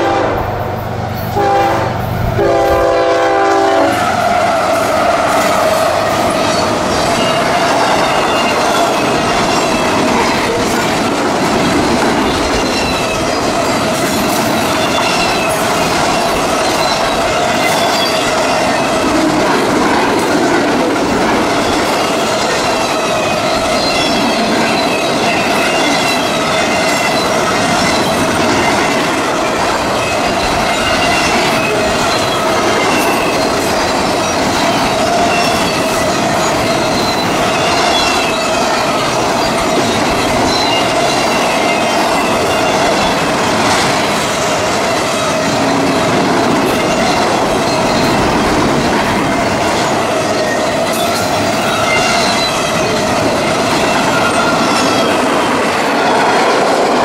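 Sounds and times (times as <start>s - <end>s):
locomotive horn blasts: 0.0s - 0.6s, 1.3s - 4.2s
train wheels on rails: 0.0s - 57.0s
high ringing tone: 51.0s - 55.3s.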